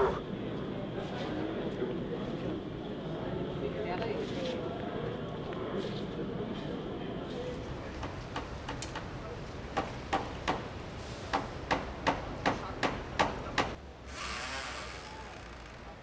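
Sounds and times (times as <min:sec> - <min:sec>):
hammer striking wood: 0:11.3 - 0:13.8.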